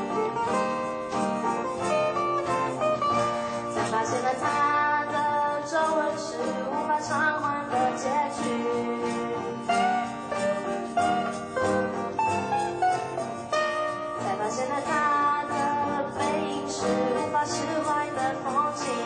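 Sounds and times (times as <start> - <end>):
acoustic guitars strumming: 0.0 - 19.0
cajon beat: 0.0 - 19.0
woman singing: 3.2 - 12.2, 14.0 - 19.0.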